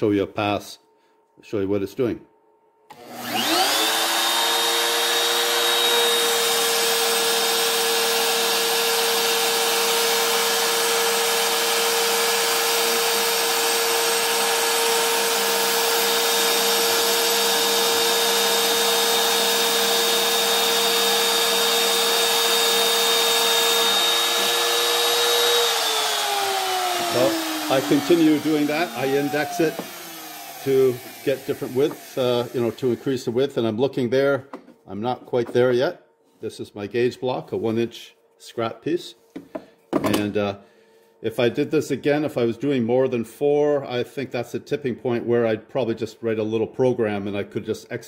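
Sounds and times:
router spindle high whine: 0:02.9 - 0:33.2.

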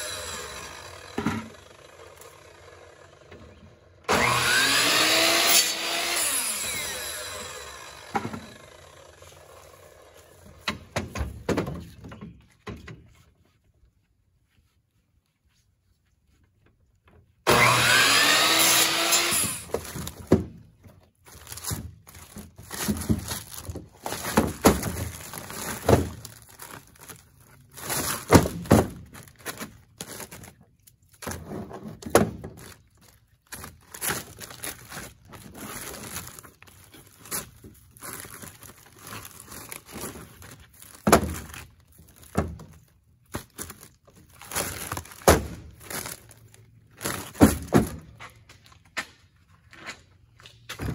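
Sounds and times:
miter saw cutting wood: 0:00.0 - 0:10.5, 0:17.5 - 0:19.8.

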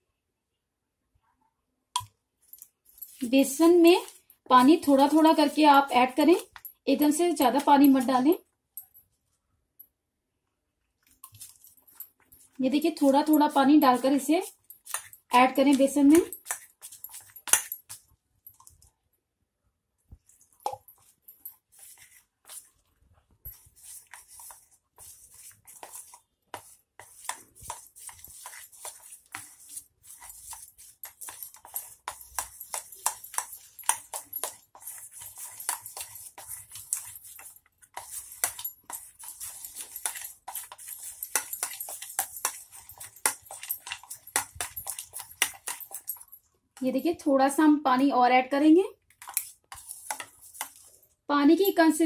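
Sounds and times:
batter beaten by hand in bowl: 0:11.2 - 0:18.1, 0:20.1 - 0:46.2, 0:49.1 - 0:50.9.

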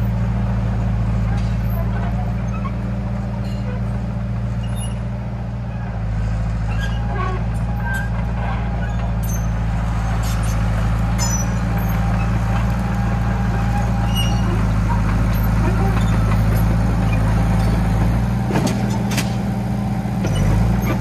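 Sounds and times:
bulldozer engine running hard: 0:00.0 - 0:21.0.

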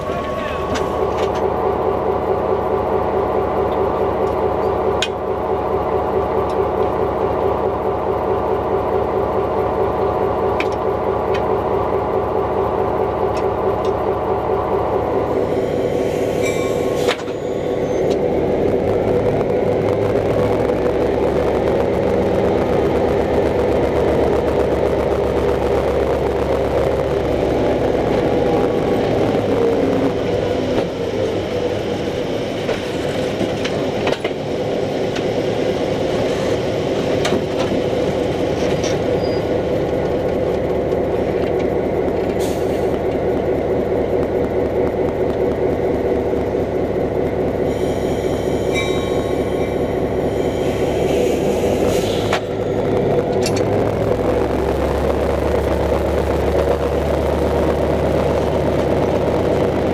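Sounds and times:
wheels clanking and clicking: 0:00.0 - 0:01.6, 0:10.4 - 0:12.1, 0:16.4 - 0:47.6, 0:51.8 - 0:54.3
diesel locomotive engine running: 0:00.0 - 0:59.9.

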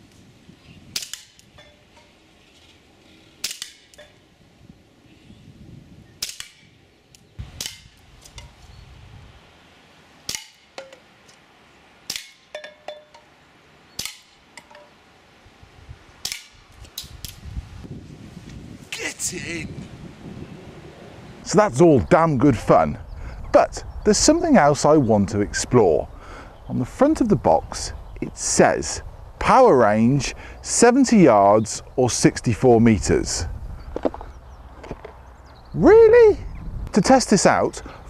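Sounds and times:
air pistol shots cracking: 0:00.9 - 0:01.4, 0:03.4 - 0:04.0, 0:06.2 - 0:06.7, 0:07.5 - 0:08.0, 0:10.3 - 0:10.8, 0:12.0 - 0:12.5, 0:14.0 - 0:14.4, 0:16.2 - 0:16.6.

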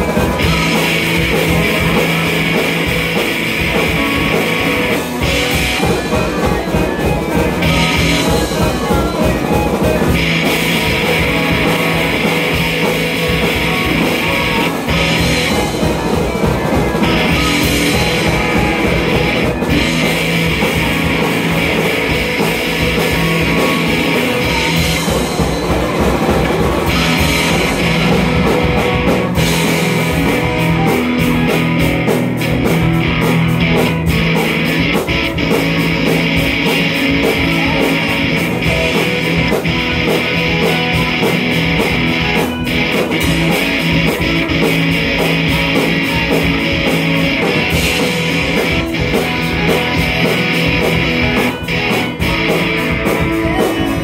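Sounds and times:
rock band playing: 0:00.0 - 0:54.0.

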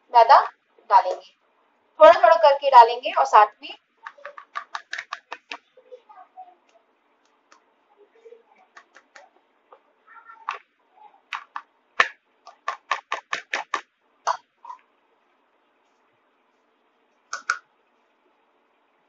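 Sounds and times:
flour sieve tapping: 0:04.1 - 0:05.6.

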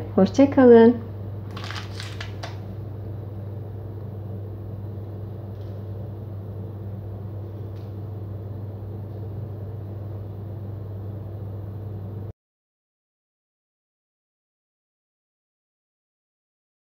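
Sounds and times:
steady low hum: 0:00.0 - 0:12.3.

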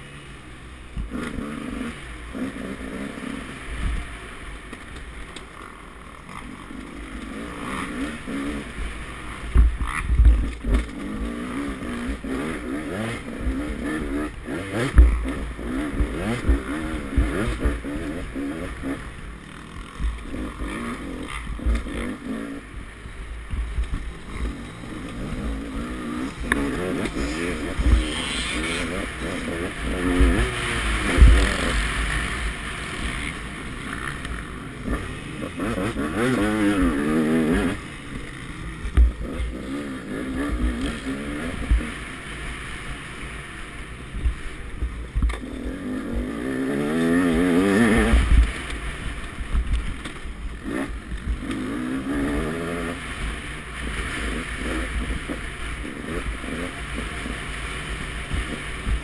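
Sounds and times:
dirt bike engine revving: 0:00.0 - 0:59.0
low thumps over bumps: 0:09.4 - 0:11.3, 0:12.1 - 0:19.0, 0:22.7 - 0:32.6, 0:47.8 - 0:50.4.

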